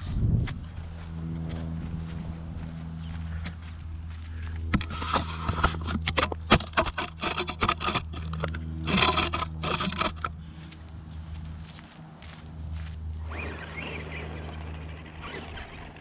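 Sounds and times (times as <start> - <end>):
gravel crunching under tyres: 0.0 - 16.0
knocks and clatters: 4.7 - 10.4.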